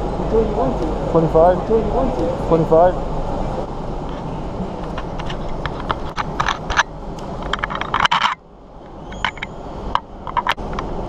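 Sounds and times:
go-kart engines rumbling: 0:00.0 - 0:08.1
sharp clicks and rattles: 0:04.8 - 0:08.4, 0:09.1 - 0:10.9.

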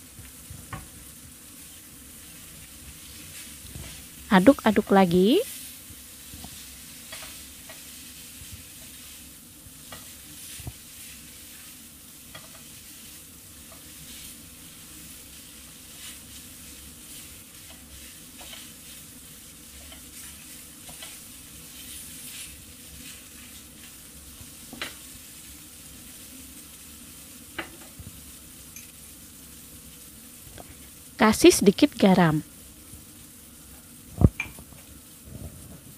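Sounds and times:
food sizzling in a pan: 0:00.0 - 0:35.9
spatula tapping and scraping pan: 0:06.4 - 0:07.9, 0:09.8 - 0:10.8, 0:12.3 - 0:12.8, 0:17.6 - 0:19.0, 0:19.7 - 0:21.2, 0:24.6 - 0:25.0.

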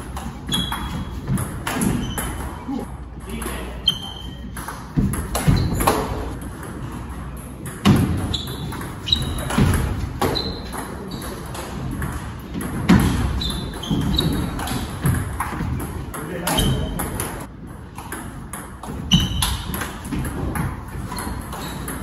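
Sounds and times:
ball bouncing on table: 0:04.2 - 0:06.8.

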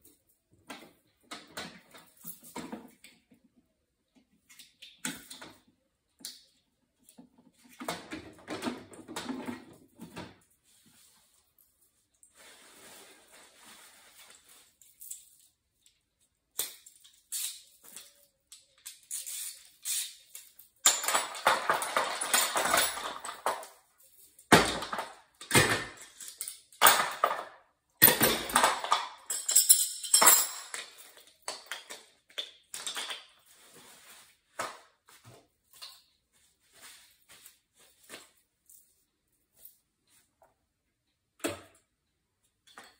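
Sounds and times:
metal tools clattering in toolbox: 0:20.8 - 0:23.8, 0:24.6 - 0:32.0.

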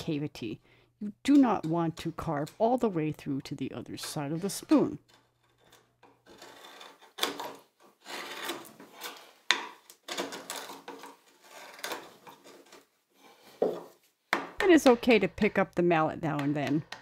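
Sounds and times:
gouge scraping wood: 0:05.1 - 0:13.8.

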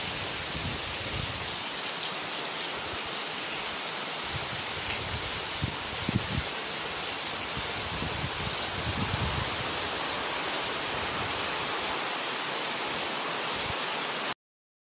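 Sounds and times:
heavy rain through trees: 0:00.0 - 0:14.4.

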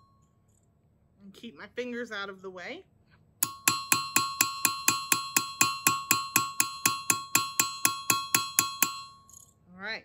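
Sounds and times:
hammer striking sheet metal: 0:03.4 - 0:09.4.

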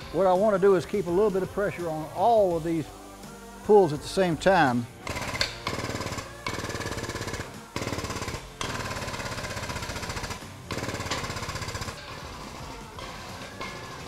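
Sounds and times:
hydraulic pump chattering: 0:05.1 - 0:12.2.

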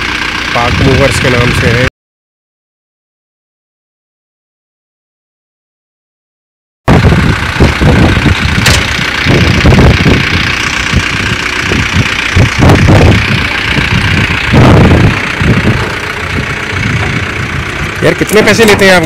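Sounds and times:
vehicle engine idling: 0:00.0 - 0:01.9, 0:06.9 - 0:19.0.

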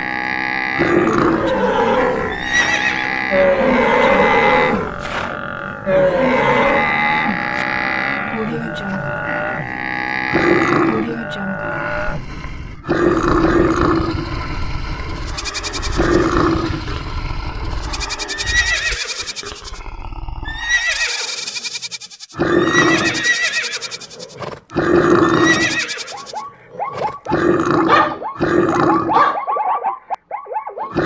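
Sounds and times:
animal calls and roars: 0:00.0 - 0:31.0
horse whinnies: 0:01.3 - 0:05.0, 0:05.8 - 0:08.0, 0:17.8 - 0:19.8, 0:20.4 - 0:26.4.

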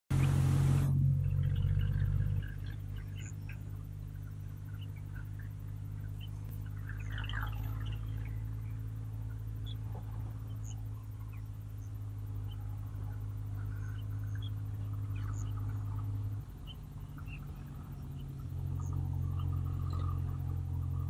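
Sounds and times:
steady low hum: 0:00.1 - 0:21.0
small birds chirping: 0:00.2 - 0:21.0.

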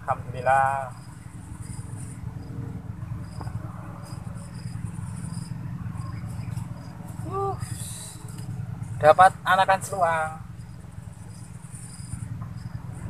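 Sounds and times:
insects buzzing trill: 0:00.0 - 0:13.0
insects chirping: 0:00.0 - 0:13.0.

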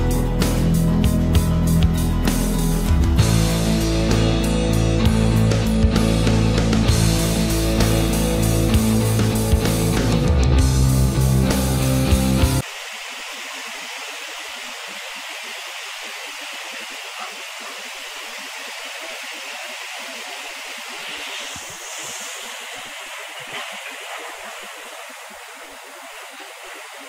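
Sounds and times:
river rapids rushing: 0:12.6 - 0:27.0.

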